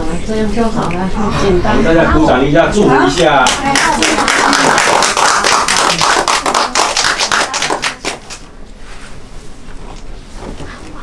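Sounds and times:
people applauding: 3.2s - 8.4s.

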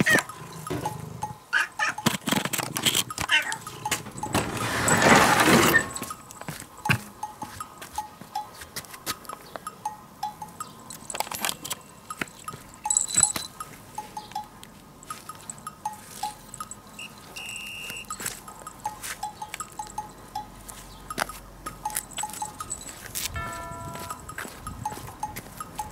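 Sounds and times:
plinking chime-like music: 9.7s - 25.9s.

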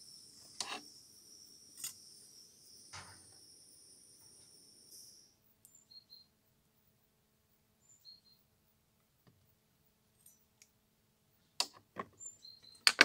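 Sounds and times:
metal hand tools clicking and knocking: 12.8s - 13.0s.

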